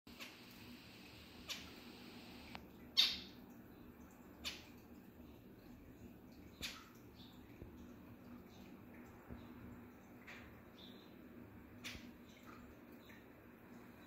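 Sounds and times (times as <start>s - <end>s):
faint steady hiss: 0.1s - 14.0s.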